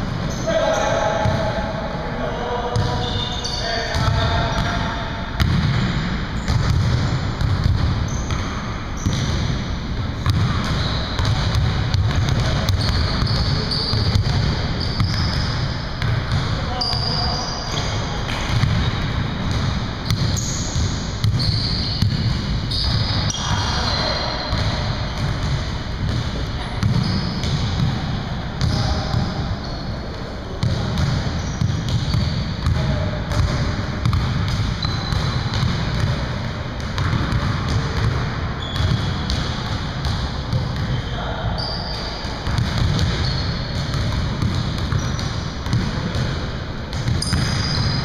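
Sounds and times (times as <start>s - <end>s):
sneaker squeaks: 0.2s - 1.6s, 2.7s - 36.2s, 36.9s - 46.3s, 46.9s - 48.0s
basketball bouncing on wooden floor: 5.4s - 5.8s, 6.5s - 9.5s, 10.2s - 16.6s, 24.5s - 28.0s, 30.6s - 40.9s, 42.4s - 48.0s.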